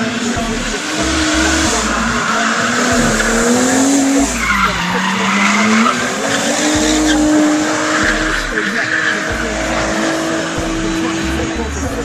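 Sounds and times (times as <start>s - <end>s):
car engine revving high: 0.0s - 12.0s.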